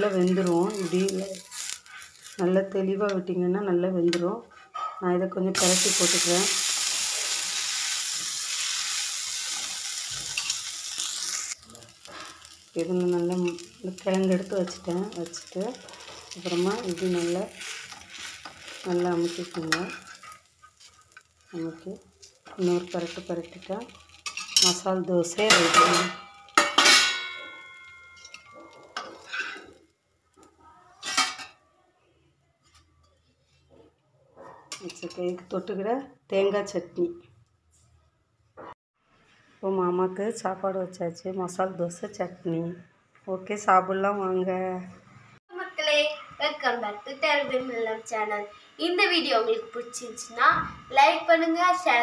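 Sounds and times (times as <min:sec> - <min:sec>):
flatbread sizzling on a griddle: 0:00.0 - 0:02.6, 0:05.6 - 0:31.3
spatula scraping: 0:00.1 - 0:02.4, 0:09.4 - 0:29.8
metal spatula clanging on cookware: 0:10.2 - 0:11.1, 0:13.2 - 0:21.3, 0:23.9 - 0:29.8, 0:31.0 - 0:31.6, 0:34.7 - 0:35.5.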